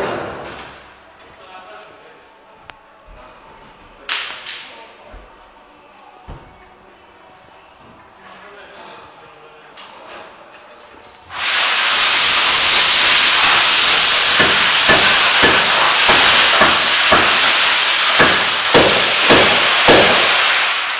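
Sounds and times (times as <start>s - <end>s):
loud air hiss: 11.3s - 20.9s.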